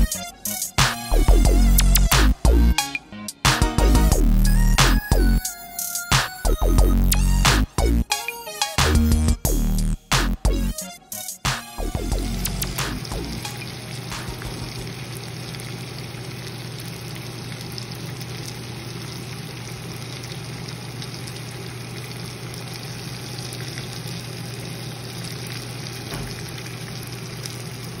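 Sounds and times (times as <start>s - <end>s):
fish sizzling in a pan: 12.8s - 28.0s.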